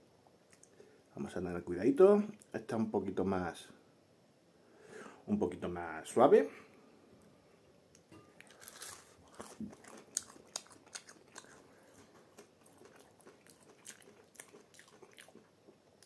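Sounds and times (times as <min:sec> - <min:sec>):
person chewing crunchy snack: 0:08.4 - 0:15.5.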